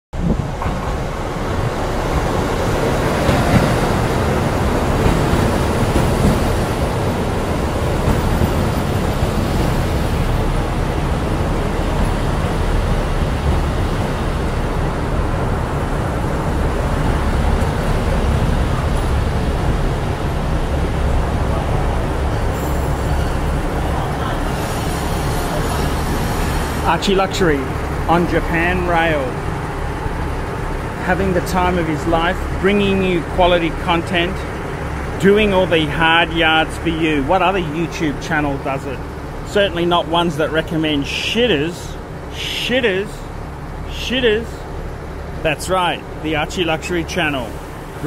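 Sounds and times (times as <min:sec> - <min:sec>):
train rumbling past: 0:00.2 - 0:48.0.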